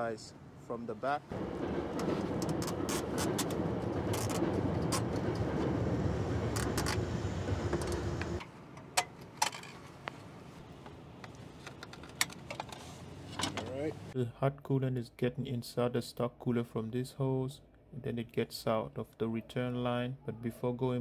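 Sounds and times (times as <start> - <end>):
steady hum: 1.3 - 8.4.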